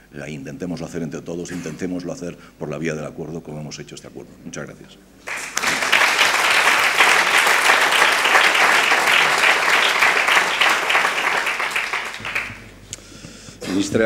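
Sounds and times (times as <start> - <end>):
audience applauding: 5.2 - 12.7.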